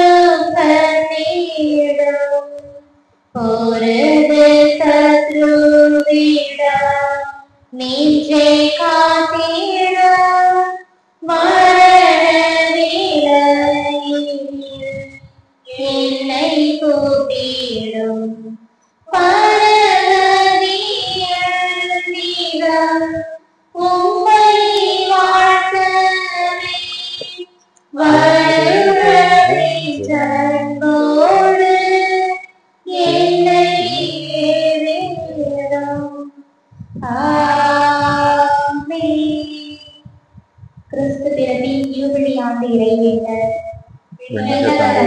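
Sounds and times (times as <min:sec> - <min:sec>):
high voices singing a hymn: 0:03.4 - 0:18.4, 0:28.0 - 0:36.3, 0:36.9 - 0:39.8, 0:40.9 - 0:45.0.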